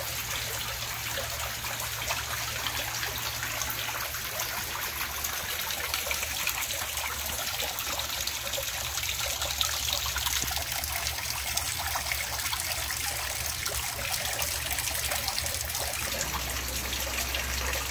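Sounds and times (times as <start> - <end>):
fountain water trickling and splashing: 0.0 - 17.9
low steady hum: 10.5 - 17.9.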